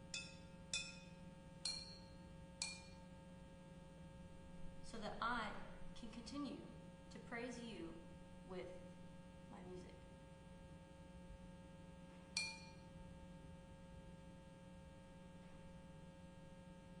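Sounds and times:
faint steady hum: 0.0s - 17.0s
clay flowerpot struck with stick: 0.1s - 3.0s.

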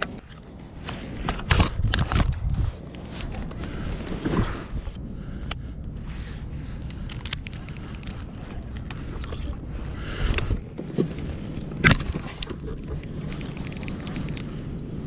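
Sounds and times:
wind rumble on microphone: 0.0s - 15.0s
gear clicks and knocks: 5.4s - 9.5s.

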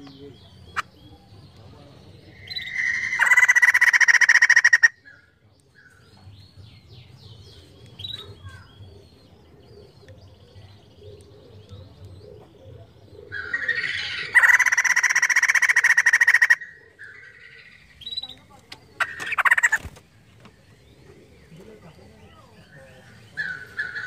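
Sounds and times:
bird cackling call: 2.6s - 5.0s, 13.4s - 17.6s, 19.0s - 19.9s.

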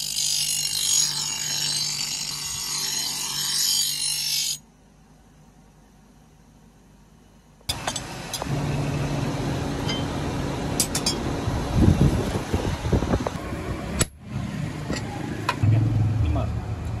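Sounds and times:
air blower humming: 7.7s - 17.0s.

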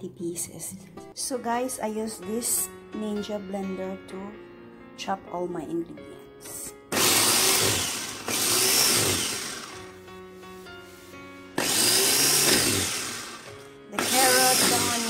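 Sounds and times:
food chopper motor pulsing: 6.9s - 10.0s, 11.6s - 15.0s.

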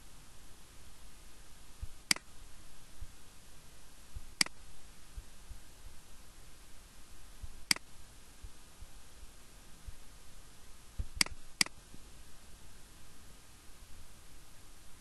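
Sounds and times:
faint steady hiss: 0.0s - 15.0s
computer mouse clicks: 7.7s - 7.9s, 11.1s - 11.8s.

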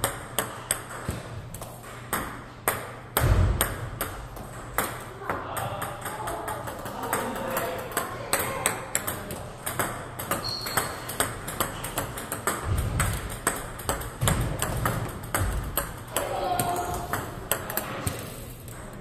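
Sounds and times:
table tennis ball clicking: 5.8s - 19.0s.

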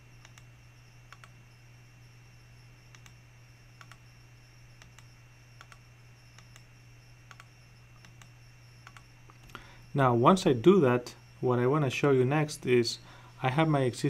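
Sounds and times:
low electrical hum: 0.0s - 14.0s
computer mouse clicks: 0.2s - 0.5s, 1.1s - 1.4s, 2.9s - 3.2s, 3.8s - 4.0s, 4.8s - 6.7s, 7.3s - 9.6s.

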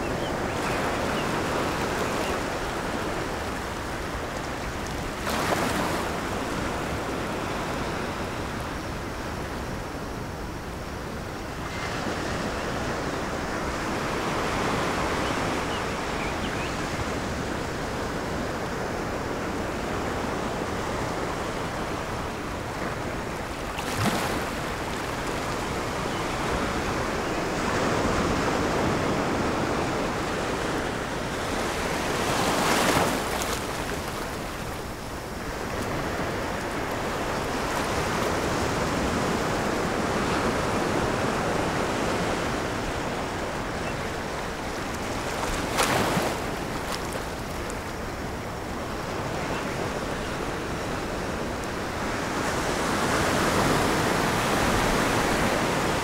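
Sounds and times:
ocean waves breaking: 12.0s - 56.0s.

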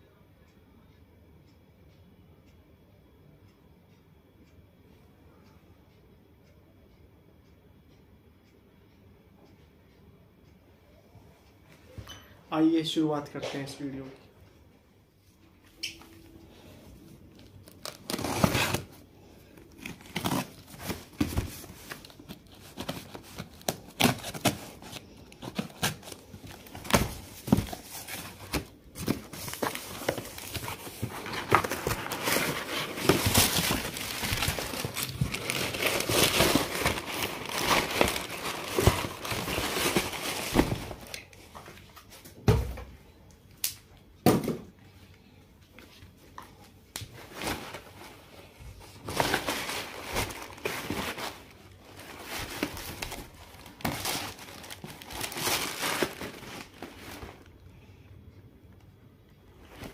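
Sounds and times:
cardboard rustling and tearing: 17.7s - 19.0s, 19.8s - 41.2s, 49.0s - 57.5s.

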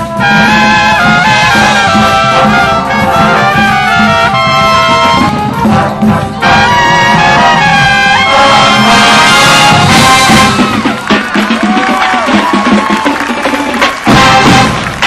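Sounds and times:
brass section playing chords: 0.0s - 11.6s, 13.9s - 15.0s.

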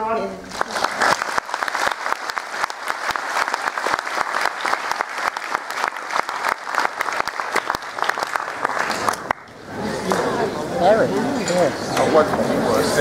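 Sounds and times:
close person clapping: 0.5s - 10.2s
audience applauding: 0.5s - 10.3s.

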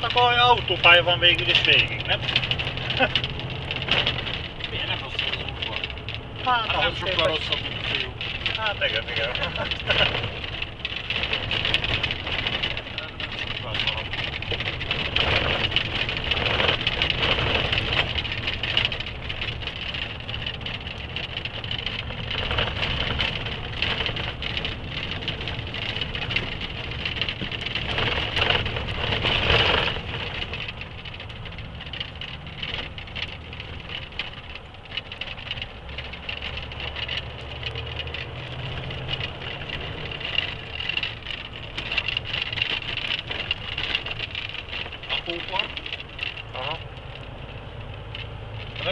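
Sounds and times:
cab rattling and knocking: 0.0s - 48.9s
tires on gravel road: 0.0s - 48.9s
truck engine running: 0.0s - 48.9s.

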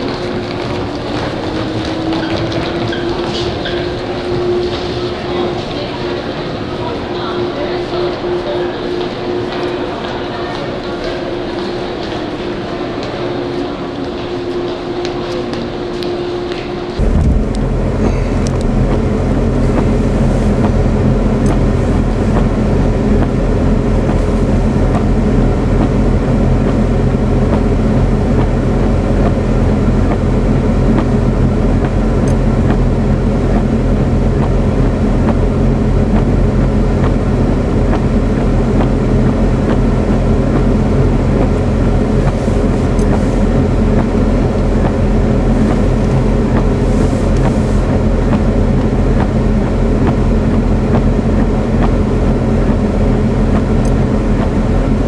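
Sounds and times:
vehicle engine running: 0.0s - 55.0s
blizzard wind rushing: 17.0s - 32.1s.

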